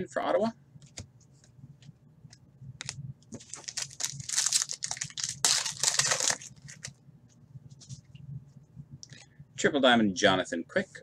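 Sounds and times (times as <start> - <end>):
foil wrapper crinkling: 3.4 - 7.0.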